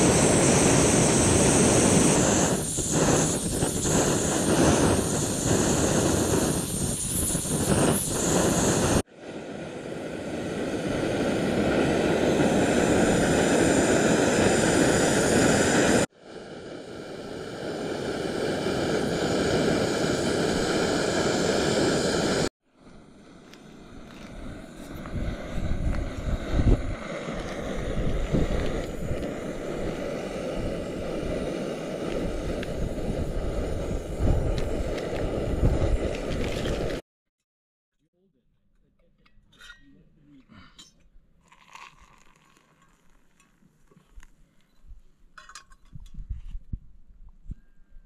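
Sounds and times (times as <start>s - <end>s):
rushing roar with buffeting thumps: 24.4s - 37.0s
sachet crinkling: 41.5s - 43.4s.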